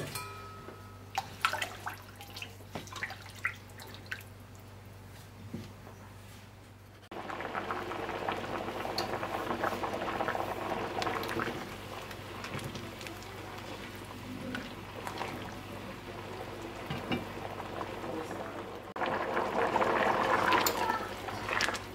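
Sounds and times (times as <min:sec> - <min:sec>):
thick liquid bubbling: 0:07.1 - 0:21.9.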